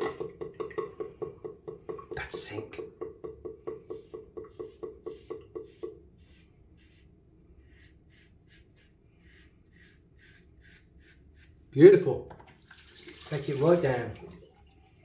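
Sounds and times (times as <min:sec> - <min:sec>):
razor scraping stubble: 0:06.8 - 0:11.8.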